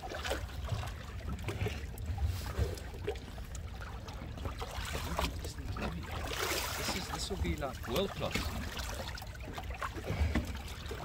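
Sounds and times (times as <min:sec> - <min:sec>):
water splashing against boat: 0:00.0 - 0:11.0.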